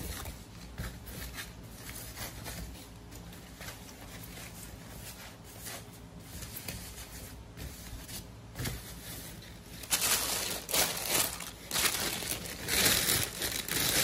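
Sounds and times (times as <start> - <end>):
plastic bag crinkling: 9.8 - 14.0.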